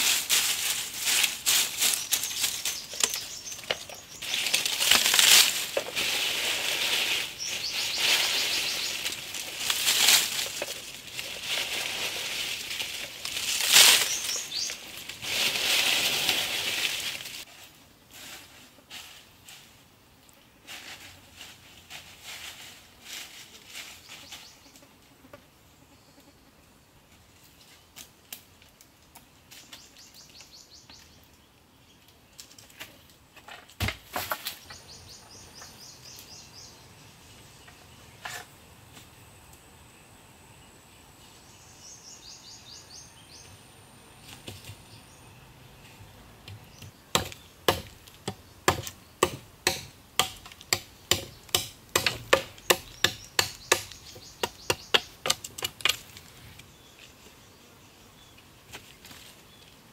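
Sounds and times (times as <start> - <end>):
machete chopping wood: 47.1 - 56.0.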